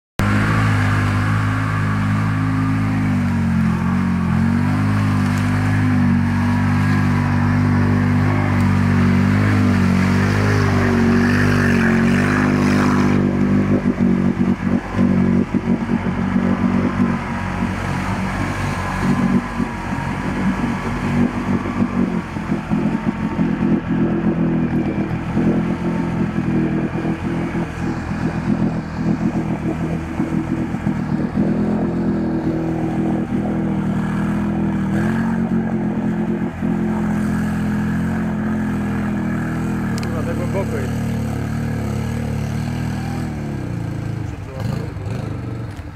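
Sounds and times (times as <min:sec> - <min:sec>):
quad bike engine running: 0:00.2 - 0:45.9
water splashing and churning: 0:00.2 - 0:45.9.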